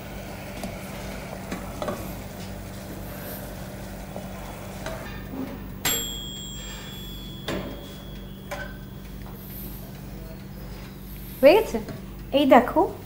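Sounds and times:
toaster oven humming: 0.0s - 13.0s
oven timer ding: 5.0s - 10.8s.

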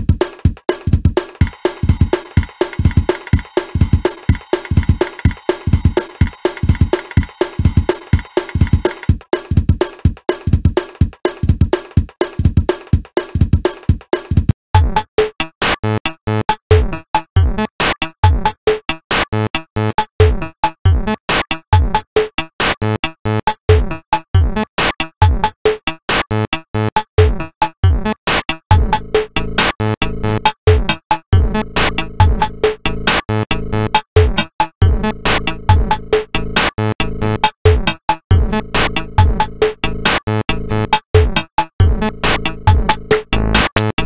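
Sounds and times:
electronic drum machine and synth loop: 0.0s - 14.6s.

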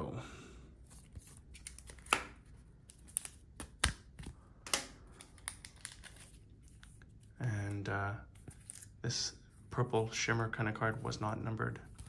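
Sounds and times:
cards clicking and tapping: 1.0s - 7.8s.

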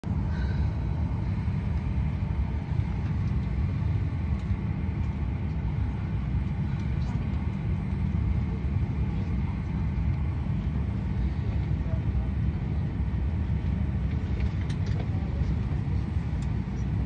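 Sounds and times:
airliner cabin rumble: 0.0s - 17.0s
faint clicks: 16.4s - 16.6s.

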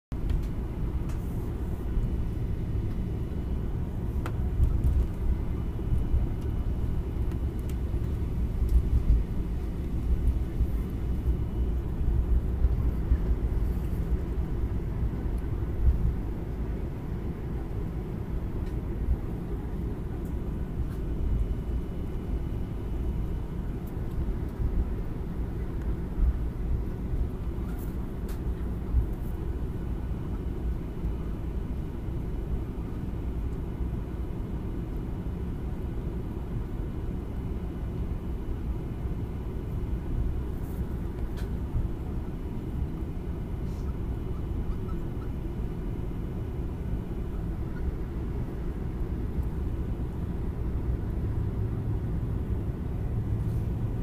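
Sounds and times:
jet engines and wheels rumbling: 0.1s - 54.0s
faint high whine: 0.2s - 34.3s.

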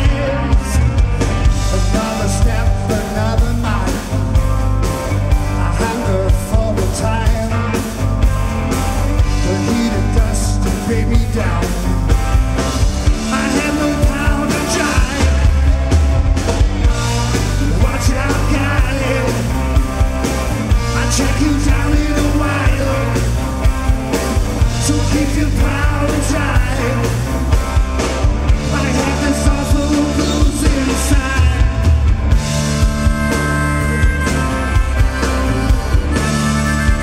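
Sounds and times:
bass guitar: 0.0s - 37.0s
drum kit: 0.0s - 37.0s
electric guitar: 0.0s - 37.0s
harmonica held notes: 32.2s - 37.0s.

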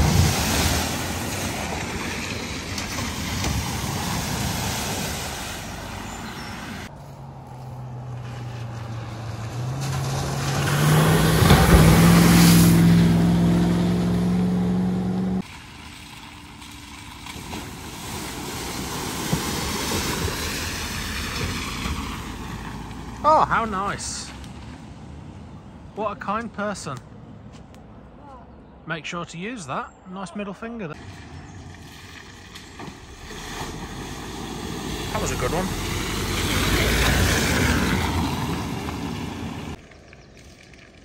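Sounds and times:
car splashing through water: 0.0s - 6.9s, 7.9s - 25.4s, 31.0s - 41.0s
water rushing and spraying: 0.0s - 6.9s, 8.4s - 24.4s, 30.9s - 39.8s
vehicle engine revving: 2.9s - 15.5s, 32.6s - 39.8s.

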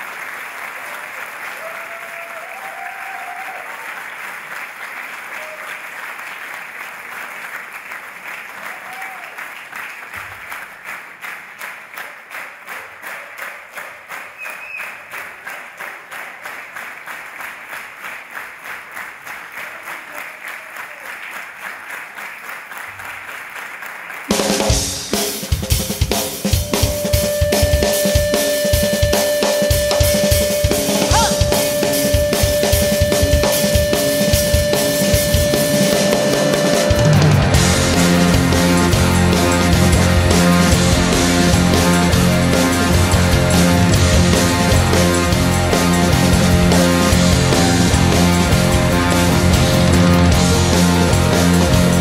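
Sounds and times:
audience applauding: 0.0s - 52.0s
rock band playing: 24.3s - 52.0s.

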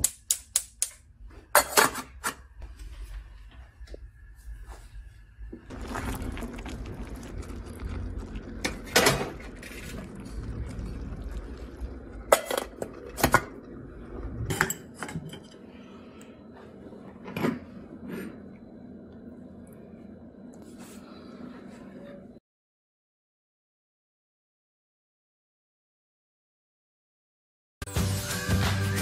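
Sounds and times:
stovetop low rumble: 2.5s - 22.4s.

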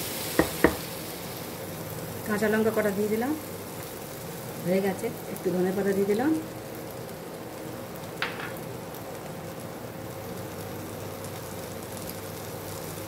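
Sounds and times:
curry sizzling in pan: 0.0s - 13.0s.

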